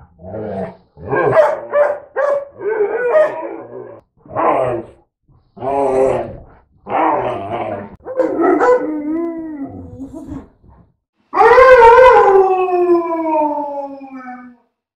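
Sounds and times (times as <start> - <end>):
dogs yowling: 1.1 - 4.8, 6.9 - 9.9, 11.4 - 14.4
dog howling: 2.4 - 4.8, 6.9 - 10.0, 11.3 - 14.6.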